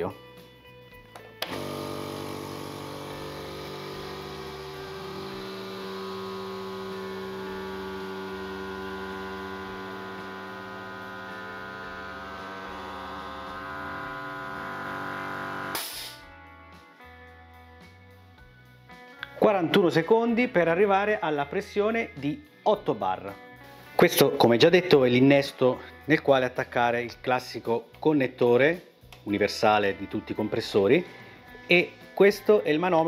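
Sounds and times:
air compressor running: 1.4 - 16.2
compressor release hiss: 1.4 - 16.2.

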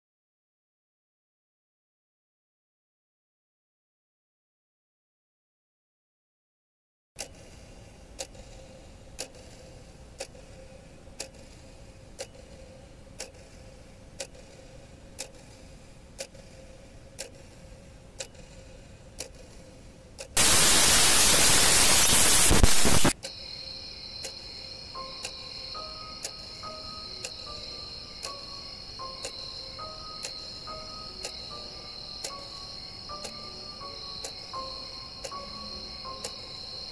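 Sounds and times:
clock ticking: 7.2 - 36.9
faint steady hum: 7.2 - 36.9
hissing static: 20.4 - 23.2
soft chiming music: 23.3 - 36.9.

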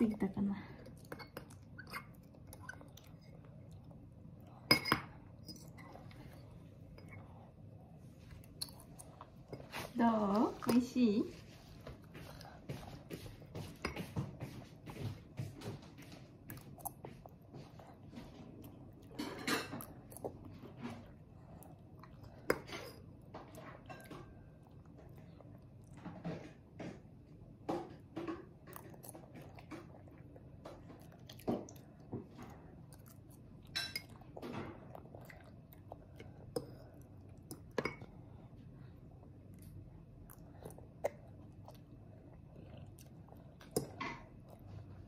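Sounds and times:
toddler chewing: 28.6 - 45.0.

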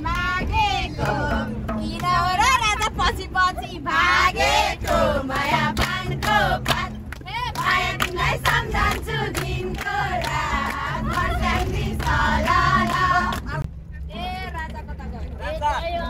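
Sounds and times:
group singing loudly: 0.0 - 1.6, 3.6 - 7.0, 7.6 - 13.6
bus engine hum: 0.0 - 16.0.

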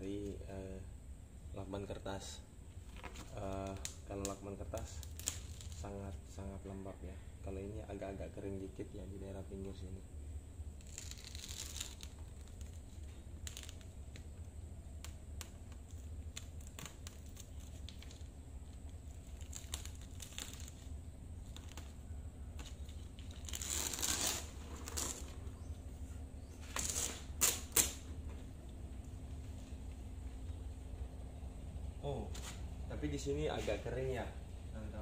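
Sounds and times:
tape crackling and clicking: 2.7 - 6.4, 10.6 - 31.7
tape ripping: 2.9 - 6.0, 10.7 - 25.5, 26.5 - 28.1.

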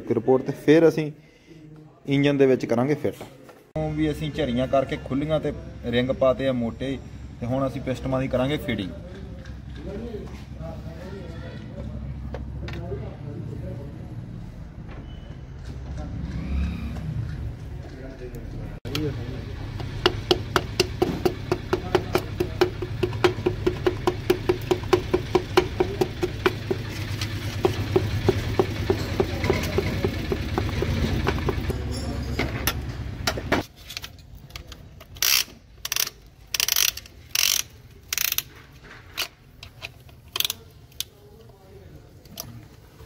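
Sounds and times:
hammer handle tapping piston: 19.7 - 32.0.

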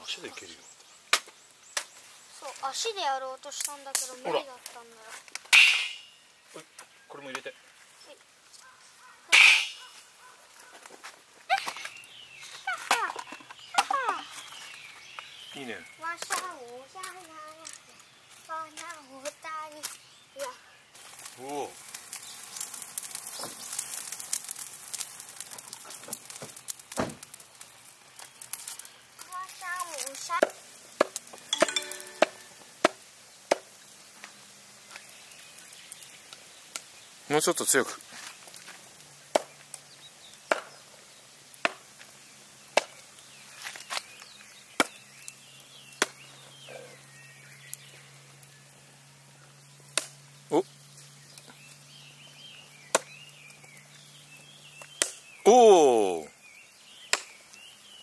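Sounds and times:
campfire crackling and popping: 0.0 - 58.0
wood chopping strikes: 1.1 - 1.9, 30.4 - 33.7, 39.3 - 39.6, 40.5 - 40.7, 41.6 - 41.9, 42.7 - 43.0, 54.9 - 55.2, 57.1 - 57.4.

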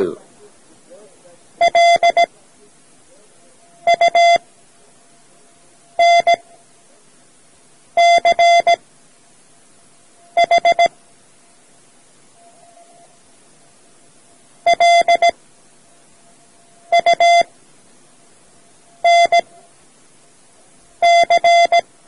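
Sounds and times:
morse code beeps: 1.6 - 2.3, 3.6 - 4.5, 5.9 - 6.6, 8.0 - 8.8, 10.3 - 10.9, 14.6 - 15.4, 16.8 - 17.5, 19.0 - 19.6, 21.0 - 21.9.

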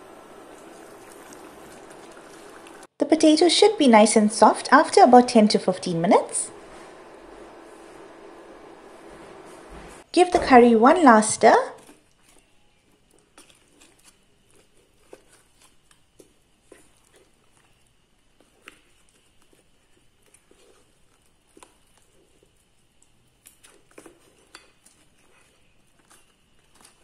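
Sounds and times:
spoon squelching in thick curry: 11.8 - 22.5.

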